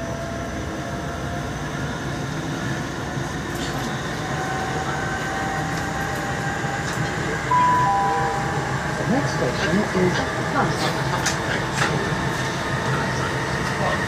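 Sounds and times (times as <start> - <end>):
train wheels rumbling on track: 0.0 - 14.0
chime tone: 7.5 - 9.0.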